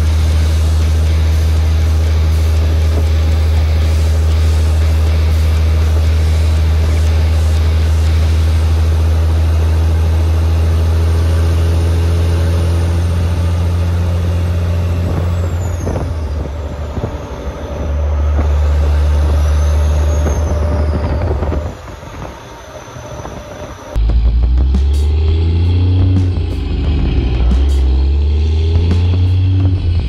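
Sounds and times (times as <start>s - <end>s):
diesel truck engine under load: 0.0s - 30.0s.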